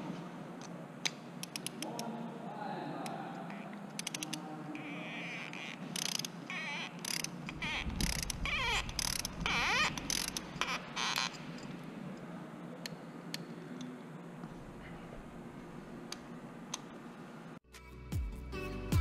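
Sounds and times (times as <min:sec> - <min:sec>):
ratchet wrench clicking: 0:05.9 - 0:11.7.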